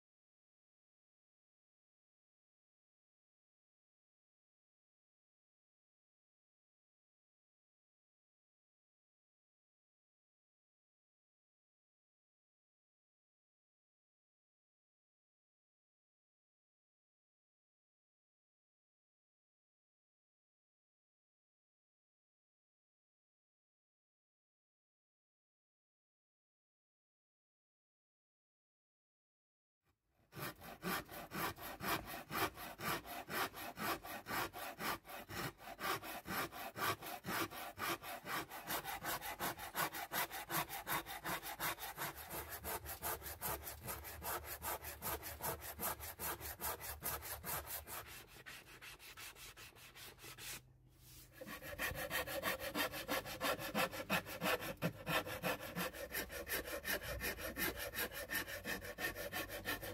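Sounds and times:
rasp scraping wood: 30.3 - 59.9.

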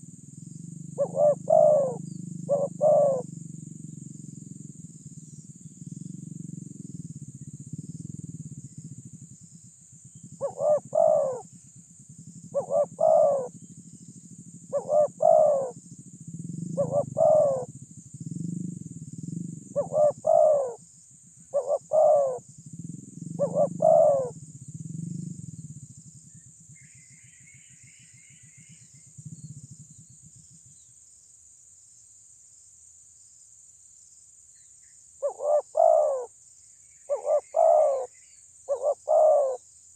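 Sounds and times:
dove cooing: 0.0 - 4.6, 10.3 - 11.5, 12.4 - 13.7, 14.3 - 15.8, 16.4 - 20.8, 21.5 - 25.8, 35.2 - 36.3, 37.1 - 39.6.

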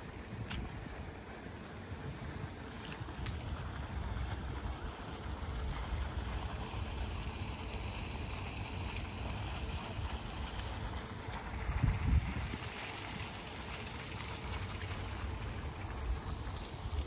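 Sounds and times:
fountain splashing into pond: 0.0 - 17.0
wind rumbling on microphone: 11.4 - 12.8.

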